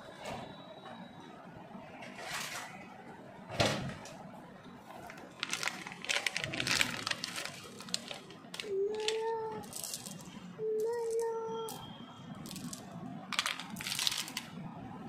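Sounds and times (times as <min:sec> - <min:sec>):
plastic wrapper crinkling: 0:04.9 - 0:11.8, 0:12.4 - 0:14.6.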